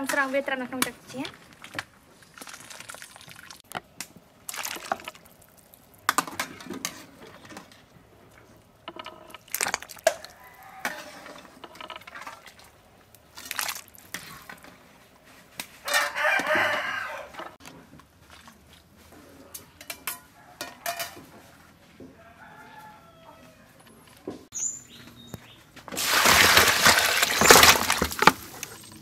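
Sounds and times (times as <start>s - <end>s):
rooster crowing: 10.2s - 11.2s, 15.8s - 17.6s, 22.1s - 23.8s.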